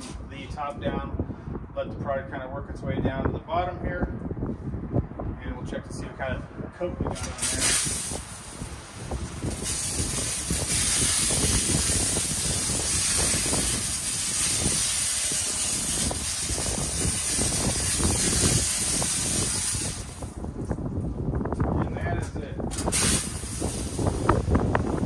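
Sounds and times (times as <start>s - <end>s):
spray wand hissing: 9.6s - 20.2s.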